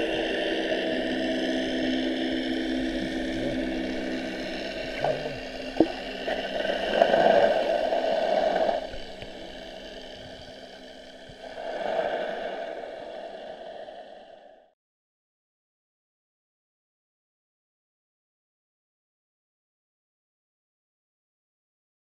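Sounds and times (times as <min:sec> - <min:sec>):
motorboat engine drone underwater: 0:00.0 - 0:14.7
rushing bubbling water: 0:03.6 - 0:14.2.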